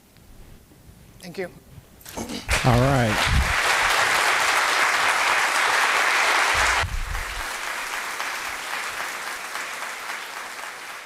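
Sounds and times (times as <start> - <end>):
audience applauding: 2.5 - 11.0.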